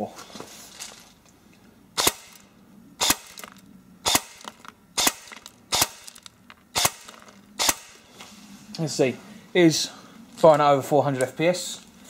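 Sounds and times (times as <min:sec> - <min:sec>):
airsoft rifle shots: 0:02.0 - 0:02.4, 0:03.0 - 0:08.0.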